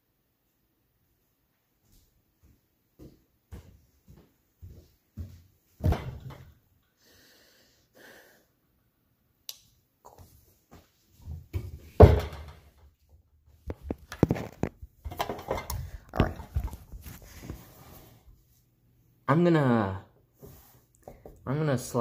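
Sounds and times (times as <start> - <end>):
heavy thump: 5.8 - 6.5
clicks bumps and rubbing: 13.6 - 17.6.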